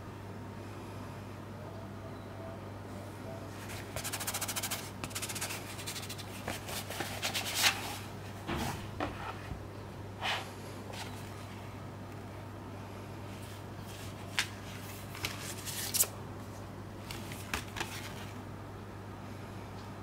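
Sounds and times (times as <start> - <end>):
cardboard rubbing and rustling: 3.6 - 8.1.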